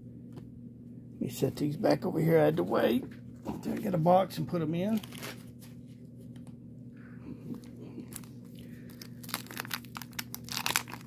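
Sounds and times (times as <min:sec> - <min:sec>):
faint steady hum: 0:00.0 - 0:11.0
paper wrapper tearing and crinkling: 0:04.9 - 0:05.4, 0:08.1 - 0:11.0.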